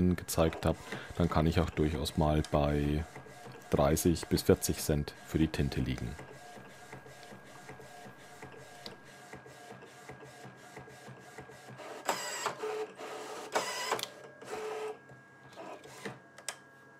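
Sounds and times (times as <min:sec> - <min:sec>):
printer motor whirring: 0:00.0 - 0:16.6.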